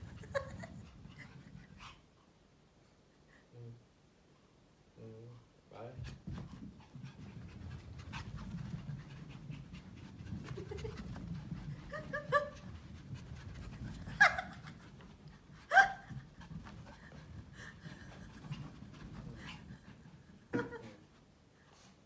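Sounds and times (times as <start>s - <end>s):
puppies panting: 0.0s - 2.4s, 6.0s - 20.7s.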